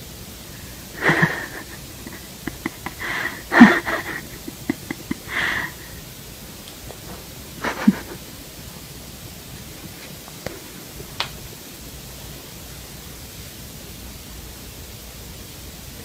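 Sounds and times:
breathy puffs and sniffs: 0.6 - 6.0.

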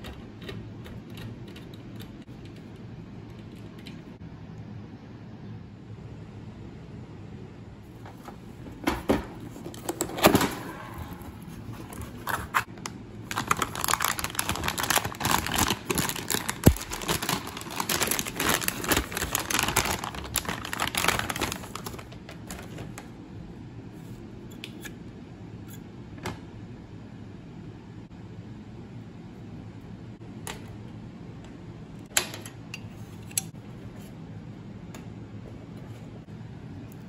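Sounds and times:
plastic bag crinkling: 11.0 - 23.1.

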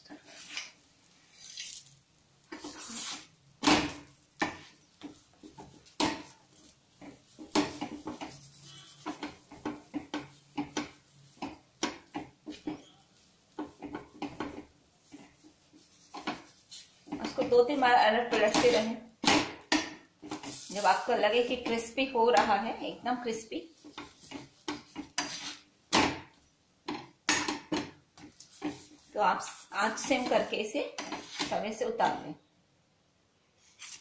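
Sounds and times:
steel spoon scraping iron griddle: 0.1 - 3.3, 4.3 - 19.0, 23.8 - 25.7.

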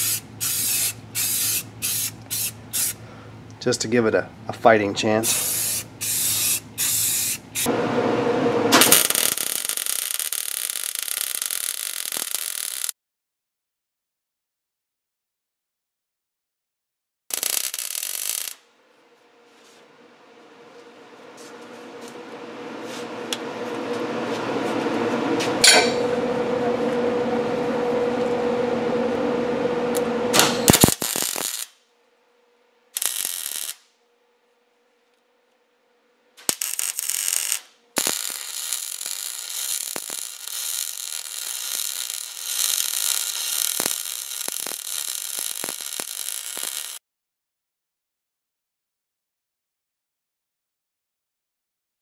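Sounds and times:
welding arc crackling: 0.0 - 3.0, 5.3 - 7.7, 8.7 - 12.9, 17.3 - 18.6, 29.9 - 31.8, 33.0 - 33.9, 36.4 - 47.0
low buzzing hum: 17.4 - 33.6.

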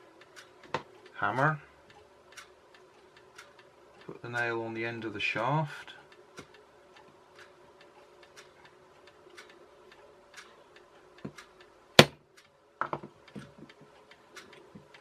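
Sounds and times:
clock ticking faintly: 0.0 - 15.0
hammer tapping a nail: 12.0 - 12.2
sharp metallic tap: 12.0 - 12.2.

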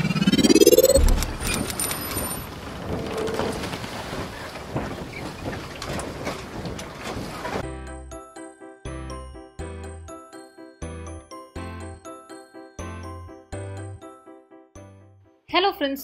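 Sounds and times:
tone sweeping upward: 0.0 - 2.3
chiming tune: 8.0 - 15.3.

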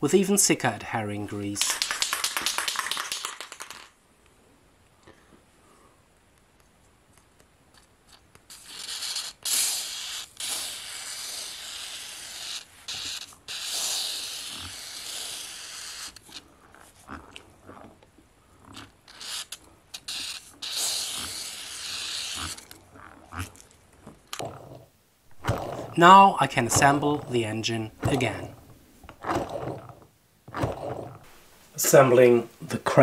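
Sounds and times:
aerosol can spraying: 8.1 - 16.4, 19.1 - 22.6.

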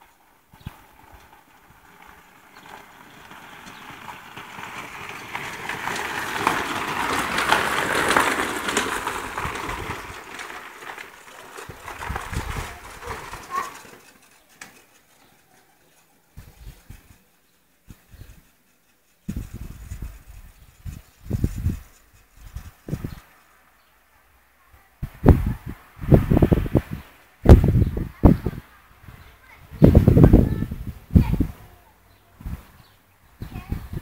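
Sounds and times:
gravel crunching under tyres: 0.0 - 24.1.

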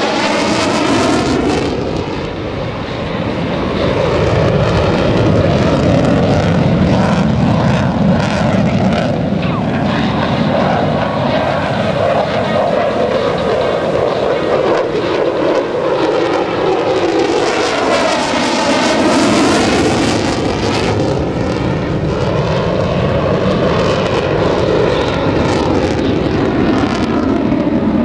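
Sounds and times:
fighter jet engine roar: 0.0 - 28.0.

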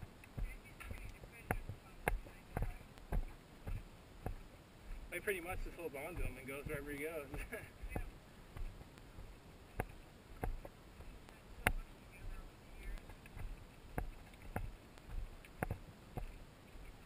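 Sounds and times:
footsteps crunching on gravel: 0.3 - 16.4.

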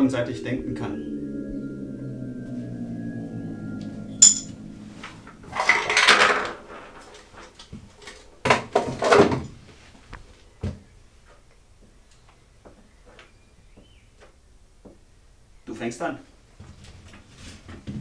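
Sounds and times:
held musical tone: 0.0 - 7.1
glassy clink: 4.2 - 4.5.

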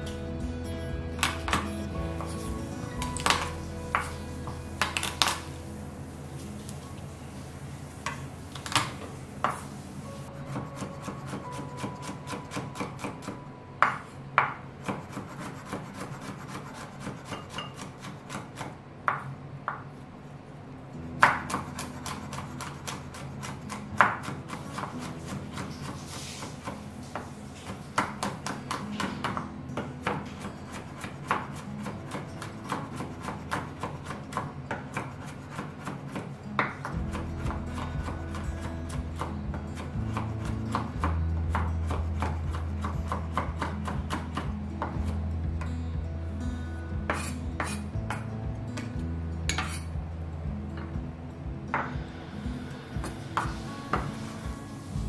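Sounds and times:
knife chopping on wooden board: 21.2 - 26.8, 28.0 - 45.0.

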